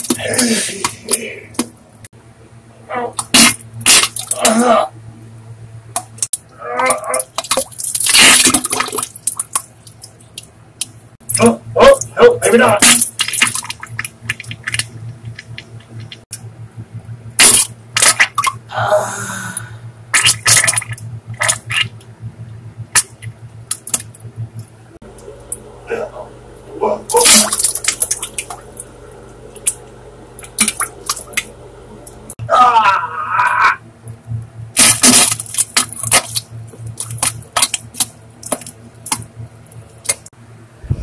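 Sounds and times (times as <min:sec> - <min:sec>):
low steady hum: 0:00.0 - 0:41.0
wet spluttering farts: 0:03.2 - 0:04.8, 0:06.8 - 0:09.6, 0:17.4 - 0:18.6, 0:20.1 - 0:22.0, 0:27.1 - 0:28.7, 0:34.8 - 0:39.2
wet farts: 0:20.1 - 0:22.0, 0:27.1 - 0:28.6.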